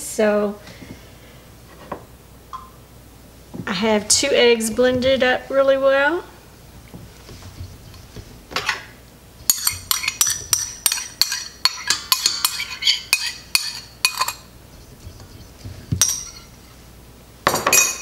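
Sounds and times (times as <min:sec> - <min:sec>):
utensil clinking on ceramic bowl: 0:09.5 - 0:14.5, 0:15.9 - 0:16.5.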